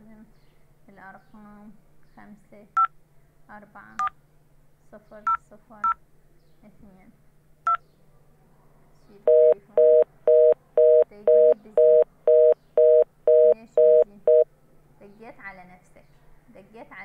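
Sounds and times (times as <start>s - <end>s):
phone keypad tone: 9.3s - 14.4s
two-tone busy signal beeps: 9.3s - 14.4s.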